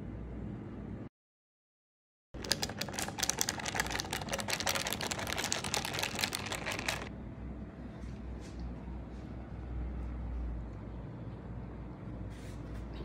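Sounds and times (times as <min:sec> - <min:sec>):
ice cubes rattling in a glass: 0:02.4 - 0:07.1.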